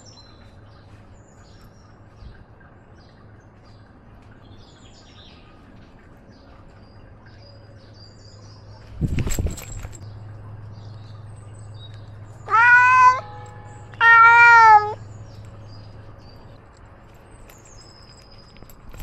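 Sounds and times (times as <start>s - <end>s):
cat meowing: 12.4s - 15.0s.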